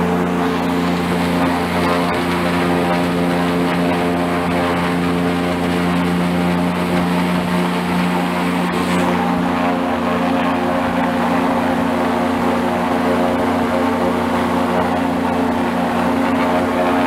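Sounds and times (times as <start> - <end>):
airboat engine and propeller drone: 0.0 - 17.0.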